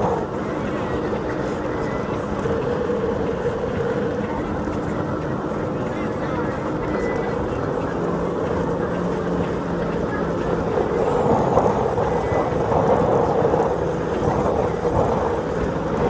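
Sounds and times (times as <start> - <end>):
powerboat engine drone: 0.0 - 16.0.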